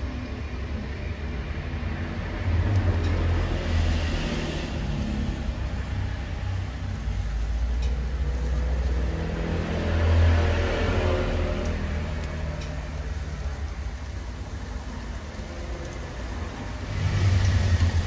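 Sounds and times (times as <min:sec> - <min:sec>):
chicken sizzling in hot oil: 0:00.0 - 0:18.0
steady low rumble: 0:16.6 - 0:18.0.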